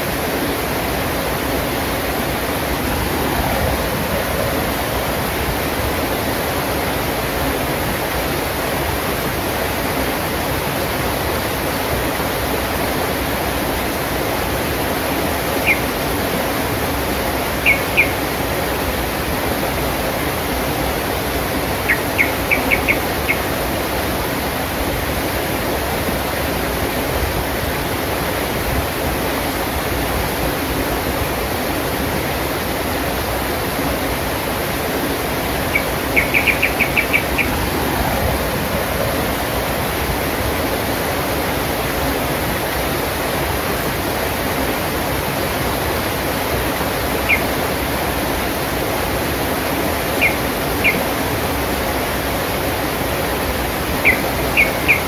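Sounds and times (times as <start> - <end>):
river rushing over rocks: 0.0 - 55.0
bird chirping: 15.6 - 15.8, 17.6 - 18.2, 21.9 - 23.4, 35.7 - 37.6, 50.2 - 51.0, 54.0 - 55.0.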